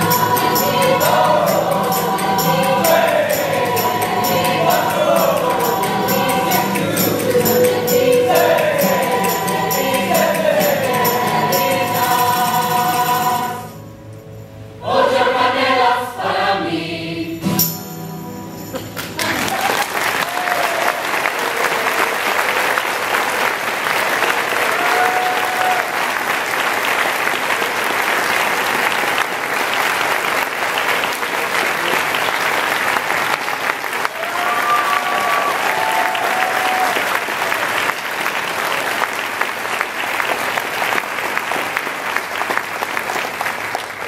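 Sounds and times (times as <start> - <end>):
audience applauding: 18.7 - 44.0
crowd cheering: 18.7 - 44.0.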